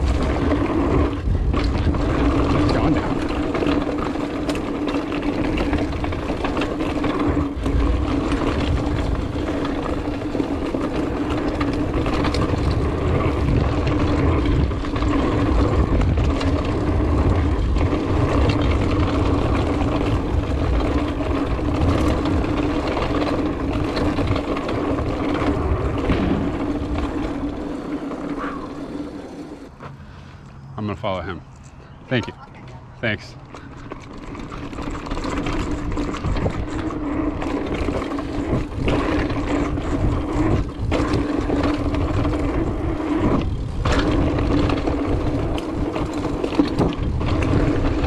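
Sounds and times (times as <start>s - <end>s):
bike rattling over bumps: 0.0s - 30.2s, 33.3s - 48.0s
bike tyres rolling on dirt: 0.0s - 32.0s, 33.0s - 48.0s
low wind rumble: 0.0s - 48.0s.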